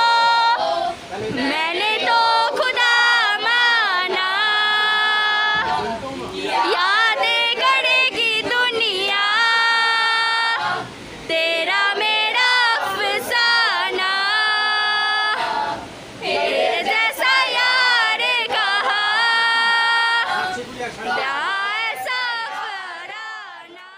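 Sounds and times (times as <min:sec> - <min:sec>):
person singing folk song: 0:00.0 - 0:05.8.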